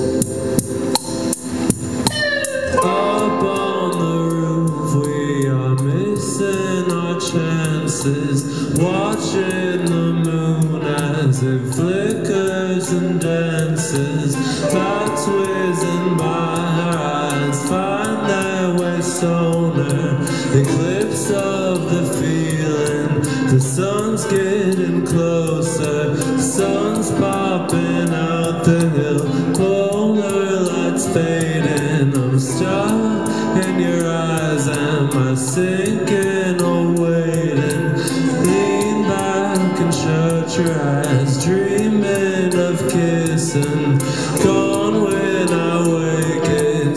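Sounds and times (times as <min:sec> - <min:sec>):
live band music: 0:00.0 - 0:46.9
man singing: 0:02.1 - 0:46.9.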